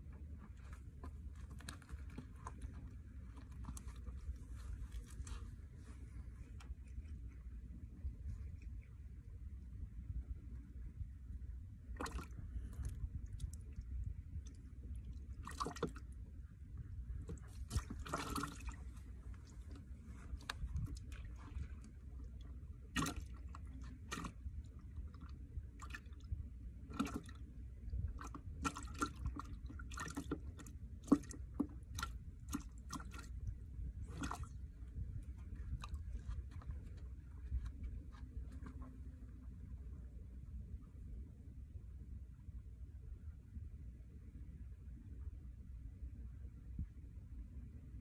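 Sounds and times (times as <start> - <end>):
low steady rumble: 0.0 - 48.0
water lapping against rocks: 11.9 - 16.2, 17.0 - 39.1.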